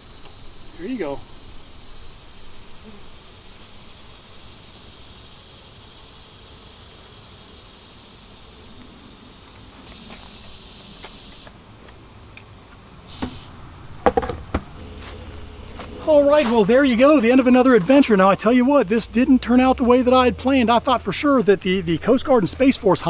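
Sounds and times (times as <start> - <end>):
high-pitched insect chorus: 0.0 - 23.0
sharp knocks: 13.2 - 14.8.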